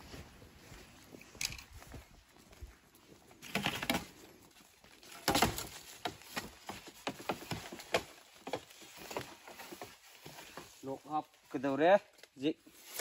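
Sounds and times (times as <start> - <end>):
dry leaves rustling and crackling: 3.4 - 11.6.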